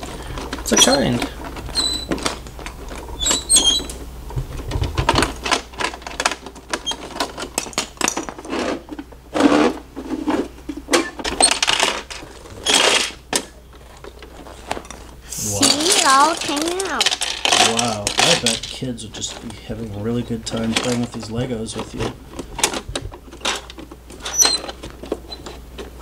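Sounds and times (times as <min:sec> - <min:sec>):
plastic toys rattling: 0:00.0 - 0:04.0, 0:04.6 - 0:26.0
plastic toy bricks clicking: 0:15.6 - 0:18.8.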